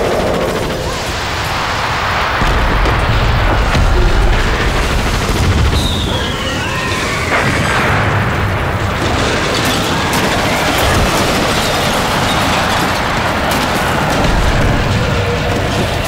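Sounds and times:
continuous rumbling din: 0.0s - 16.0s
explosion: 0.8s - 16.0s
falling bomb whistle: 5.2s - 8.0s.

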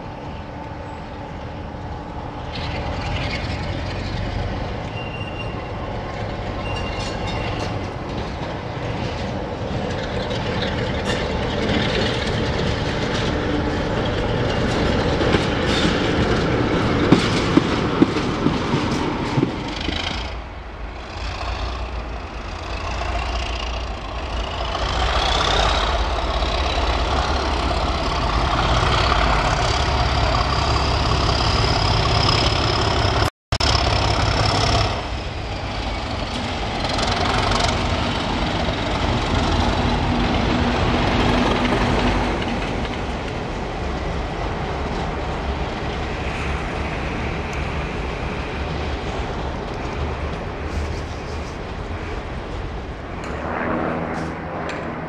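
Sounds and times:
locomotive engine rumbling: 0.0s - 55.0s
rising engine whine: 0.0s - 55.0s
wheels clicking over rail joints: 2.5s - 46.5s.

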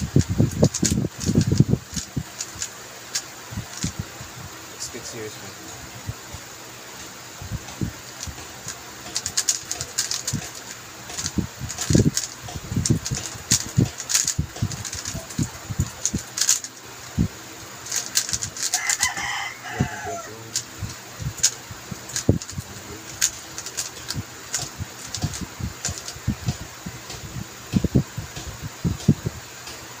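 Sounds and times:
puzzle cube plastic clicks: 0.0s - 4.0s, 7.6s - 16.8s, 17.8s - 19.4s, 20.5s - 29.2s.

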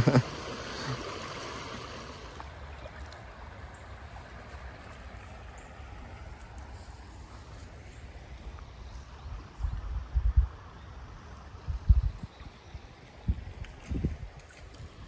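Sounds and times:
stream flowing over stones: 0.0s - 7.4s.

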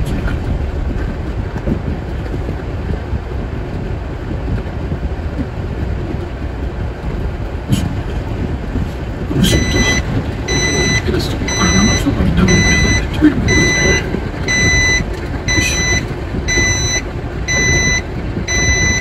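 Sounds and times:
truck engine rumbling: 0.0s - 19.0s
reversing beeper: 9.4s - 19.0s.

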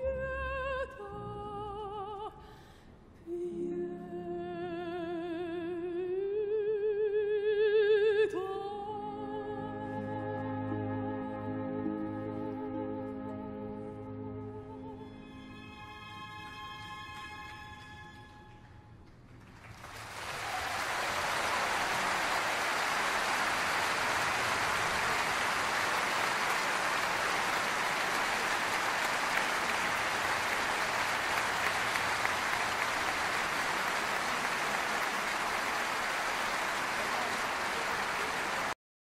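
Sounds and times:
large audience applause: 19.2s - 38.8s.

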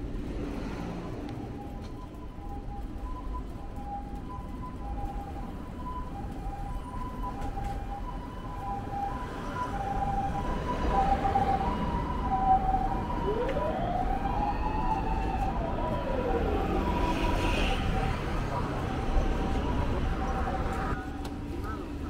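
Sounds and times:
street traffic: 0.0s - 22.0s
two-tone ambulance siren: 0.6s - 21.6s
sliding siren tone: 1.2s - 21.2s.

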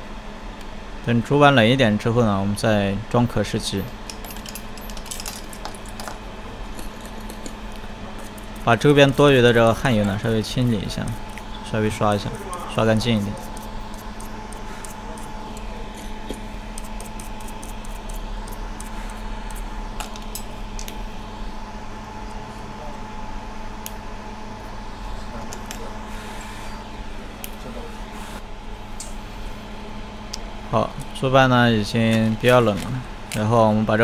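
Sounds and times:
metal tweezers clicking and scratching: 6.8s - 20.9s.

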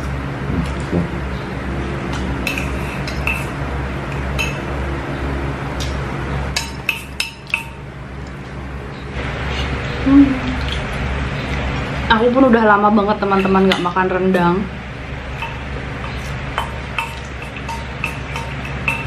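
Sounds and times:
utensils clinking on metal bowls: 2.1s - 4.7s, 5.8s - 7.8s, 10.5s - 14.7s, 15.3s - 19.0s.

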